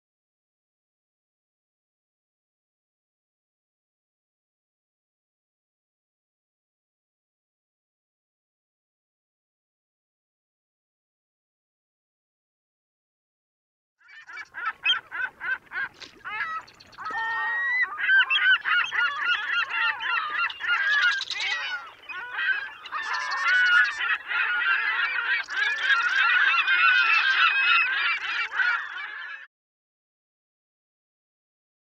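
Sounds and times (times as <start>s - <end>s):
flock of birds calling: 14.0s - 29.5s.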